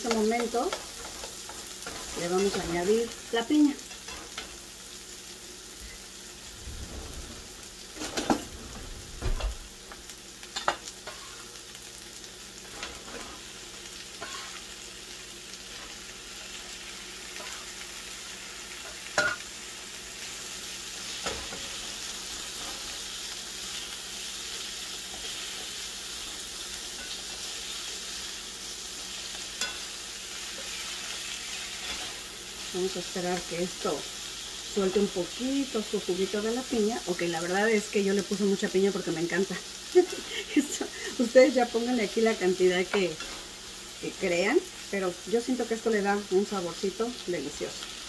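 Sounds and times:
onions sizzling in a skillet: 0:00.0 - 0:48.0
utensils tapping on pan: 0:10.6 - 0:11.3, 0:18.8 - 0:19.4, 0:29.6 - 0:29.9.

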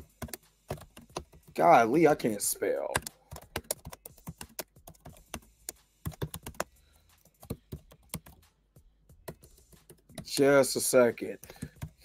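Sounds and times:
typing on computer keyboard: 0:00.0 - 0:01.6, 0:02.9 - 0:05.4, 0:06.0 - 0:08.4, 0:11.4 - 0:12.0.

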